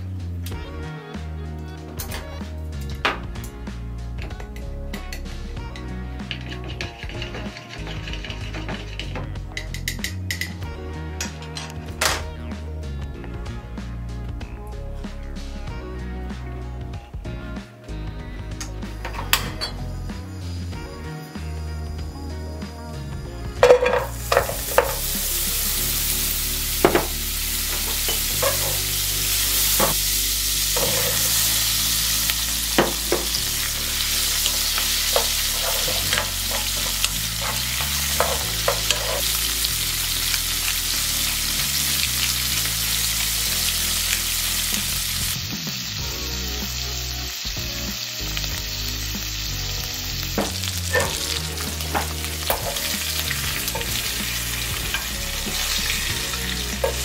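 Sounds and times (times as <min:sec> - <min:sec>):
shrimp sizzling in butter: 0:23.5 - 0:57.0.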